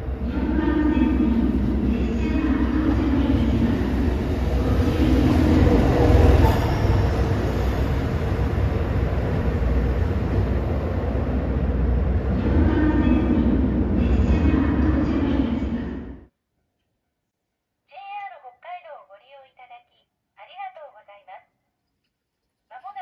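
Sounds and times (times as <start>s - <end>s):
diesel train running: 0.0s - 16.2s.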